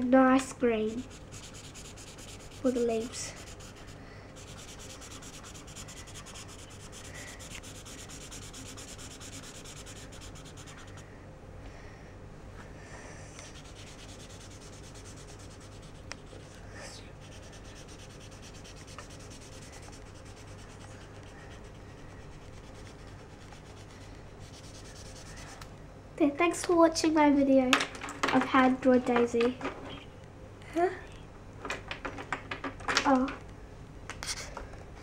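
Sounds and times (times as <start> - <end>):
marker rubbing on paper: 0.9 - 11.0, 13.4 - 25.6.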